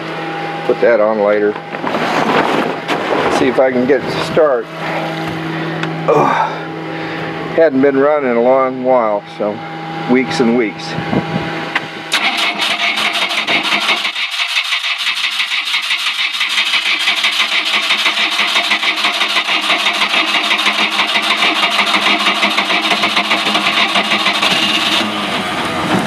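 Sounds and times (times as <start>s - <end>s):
starter motor cranking engine: 12.1s - 25.8s.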